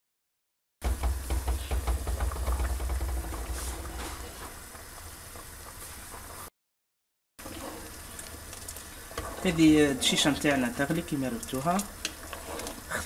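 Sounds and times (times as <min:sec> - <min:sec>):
thick soup bubbles popping: 0:00.8 - 0:05.8, 0:07.8 - 0:09.7.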